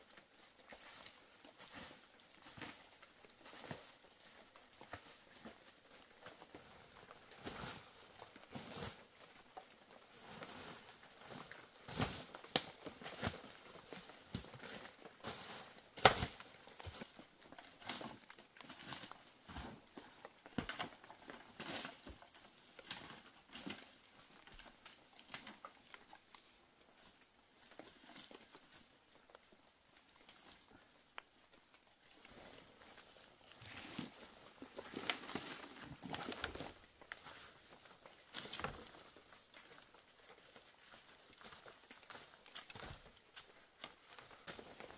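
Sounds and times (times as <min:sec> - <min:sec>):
crinkling and rustling: 0:00.1 - 0:44.9.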